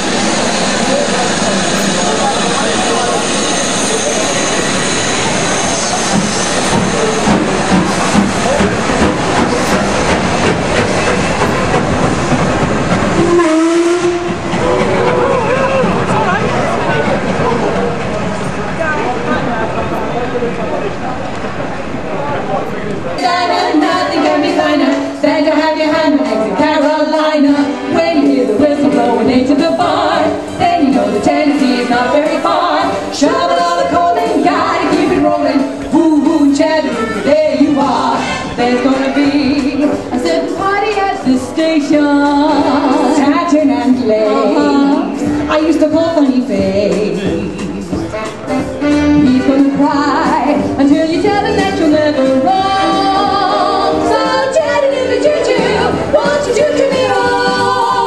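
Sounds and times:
women singing through speaker: 23.2s - 58.0s.

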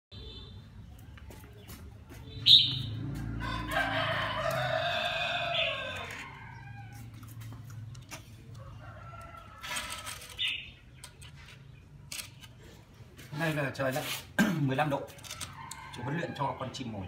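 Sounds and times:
rooster crowing: 3.1s - 7.4s, 8.5s - 10.3s.

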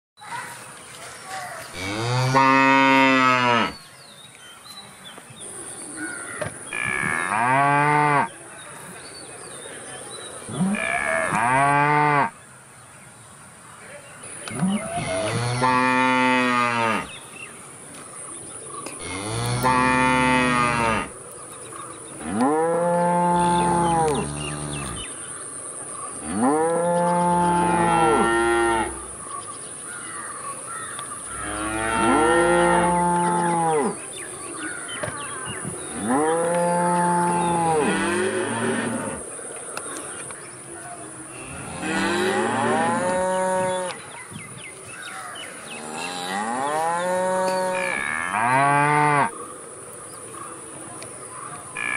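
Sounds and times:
cows mooing: 1.8s - 3.8s, 6.7s - 8.3s, 10.5s - 12.4s, 14.5s - 17.1s, 19.0s - 21.2s, 22.2s - 25.1s, 26.2s - 29.0s, 31.3s - 34.0s, 35.9s - 39.2s, 41.4s - 44.0s, 45.8s - 49.3s.

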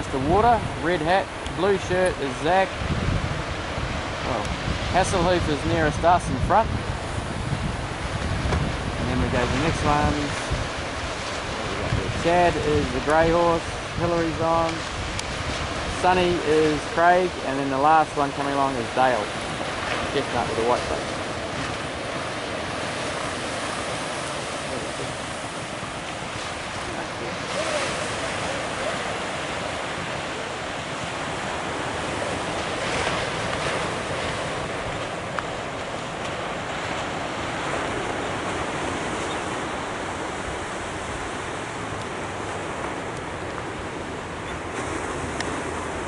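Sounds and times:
ocean surf breaking: 0.0s - 46.0s
wind buffeting microphone: 0.0s - 46.0s.

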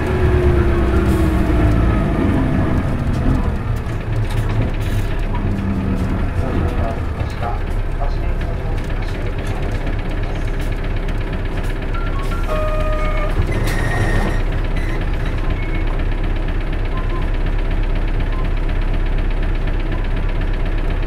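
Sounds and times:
bus diesel engine running: 0.0s - 21.0s
brief high tones: 12.0s - 14.2s.

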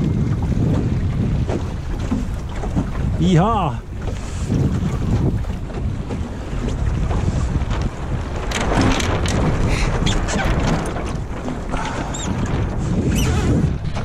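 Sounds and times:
water slapping boat hull: 0.0s - 14.0s
wind buffeting microphone: 0.0s - 14.0s.

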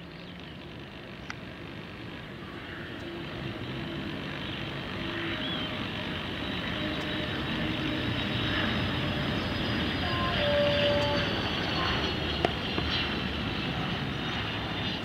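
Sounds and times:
faint high whine: 0.0s - 15.0s
jet engine rush: 0.0s - 15.0s.

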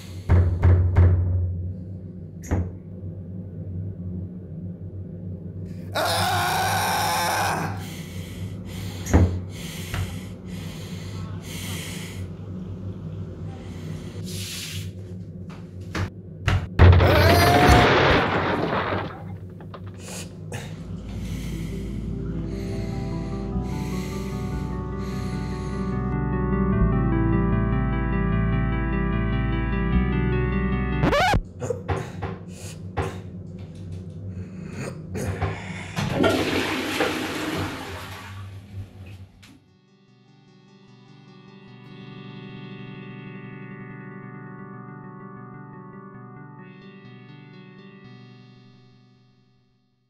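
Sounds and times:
low steady hum: 1.4s - 16.9s, 17.6s - 26.2s
music: 20.0s - 36.0s, 39.1s - 50.0s
toilet flushing: 36.0s - 39.2s.

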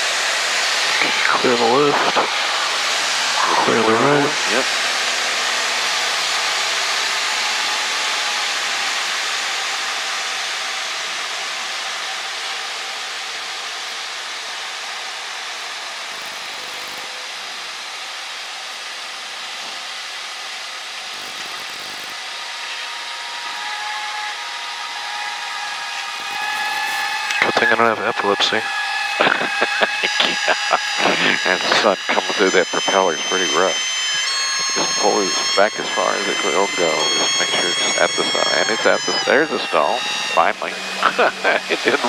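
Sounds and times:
small plane engine and propeller: 0.0s - 42.0s
faint high tone: 29.6s - 42.0s.

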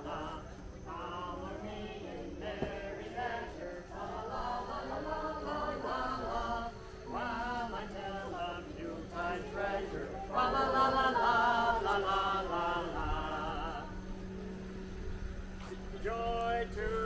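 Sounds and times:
faint low hum: 0.0s - 17.0s
group singing a carol: 0.0s - 17.0s.

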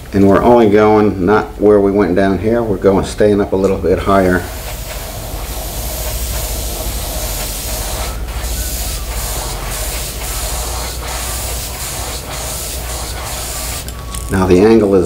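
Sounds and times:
airbrush spraying hiss: 4.1s - 14.0s.

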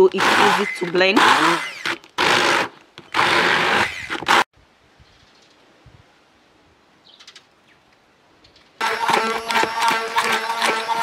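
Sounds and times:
immersion blender running: 0.0s - 4.4s, 8.8s - 11.0s.

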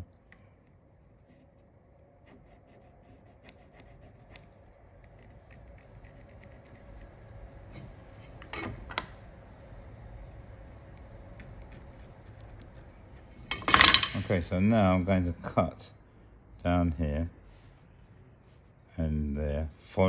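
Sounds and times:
pencil scratching on wood: 1.0s - 7.1s, 11.4s - 12.9s.

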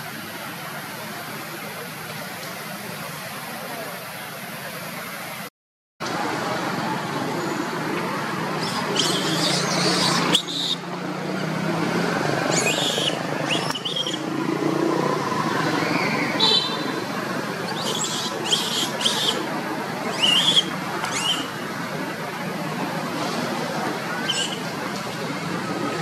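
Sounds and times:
monkeys squealing: 8.6s - 10.8s, 12.5s - 14.2s, 17.6s - 21.6s, 24.2s - 24.7s.

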